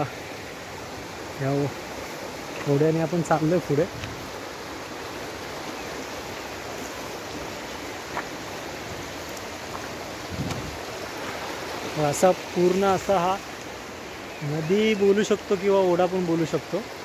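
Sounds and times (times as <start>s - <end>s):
stream flowing over rocks: 0.0s - 17.0s
short low thump: 10.4s - 10.8s.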